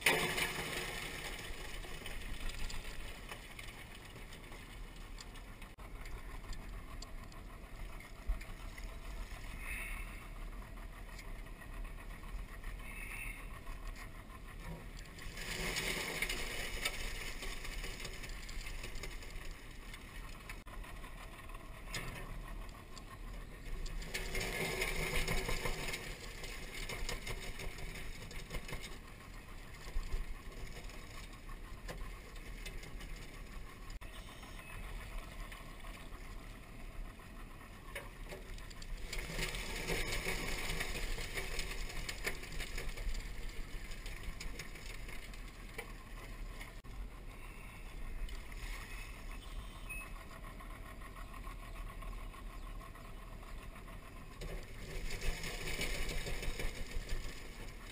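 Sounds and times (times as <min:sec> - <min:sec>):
splashing and rattling traps: 0:00.0 - 0:05.8, 0:14.6 - 0:20.8, 0:21.5 - 0:34.0, 0:37.9 - 0:46.9, 0:54.4 - 0:57.9
outboard motor idling: 0:00.0 - 0:57.9.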